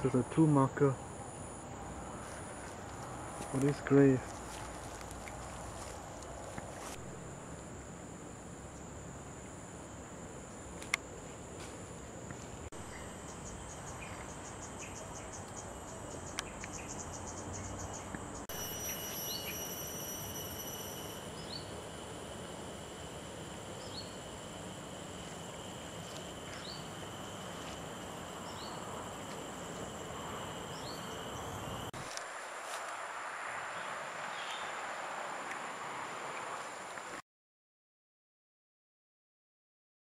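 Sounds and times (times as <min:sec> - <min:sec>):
crickets chirping: 0:00.0 - 0:37.2
rapid pulsing insect trill: 0:00.0 - 0:37.2
high-pitched insect drones: 0:11.6 - 0:35.8
short rising insect chirp: 0:12.8 - 0:31.9.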